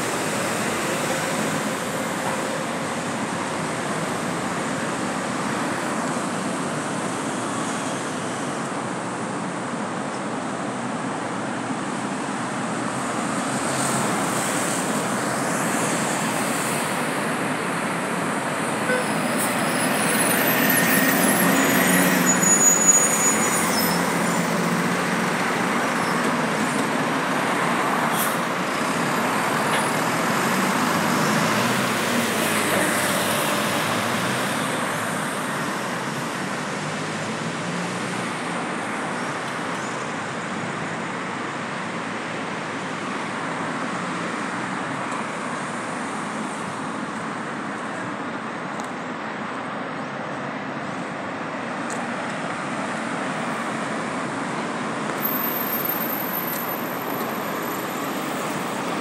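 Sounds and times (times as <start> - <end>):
road traffic: 0.0 - 59.0
bus driving past: 11.5 - 41.0.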